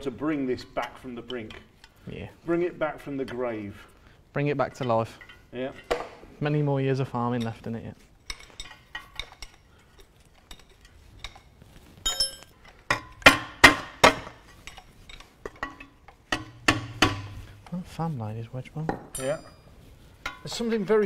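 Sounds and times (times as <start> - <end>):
tools clanking on metal engine parts: 8.2 - 13.3, 14.1 - 17.4.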